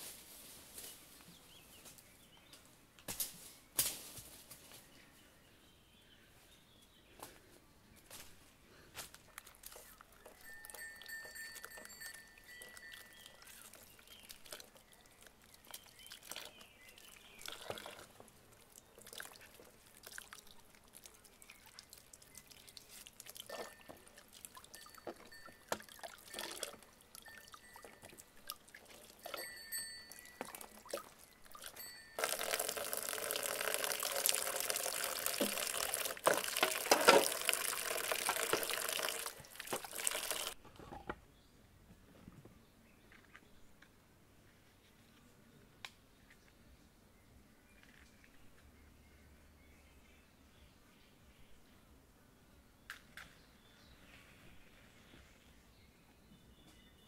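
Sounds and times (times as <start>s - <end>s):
bird chirps: 9.8s - 17.7s
water splashing into plastic bowl: 15.4s - 29.4s, 30.4s - 40.6s.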